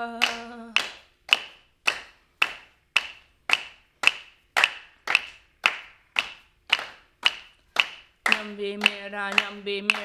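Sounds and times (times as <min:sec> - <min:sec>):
person singing: 0:00.0 - 0:01.0, 0:08.3 - 0:10.0.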